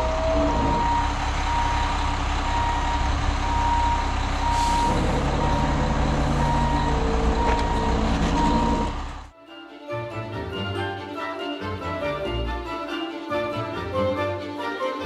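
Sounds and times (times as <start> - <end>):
reverse alarm beeping: 0.0 - 9.0
diesel engine running: 0.0 - 9.3.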